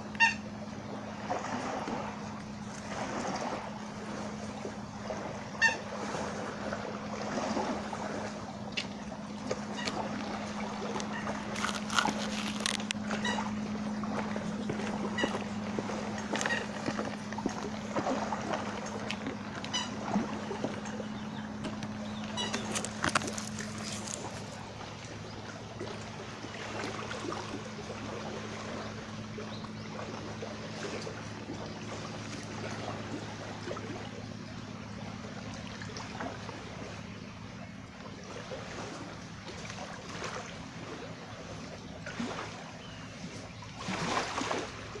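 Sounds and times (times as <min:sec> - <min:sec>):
steady low hum: 0:00.0 - 0:45.0
water lapping: 0:00.0 - 0:45.0
rustle: 0:08.7 - 0:20.3, 0:21.5 - 0:25.2.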